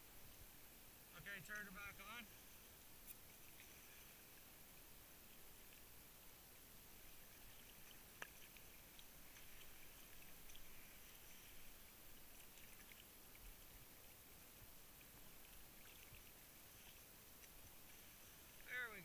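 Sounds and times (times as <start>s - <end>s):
water lapping against camera housing: 7.3s - 19.0s.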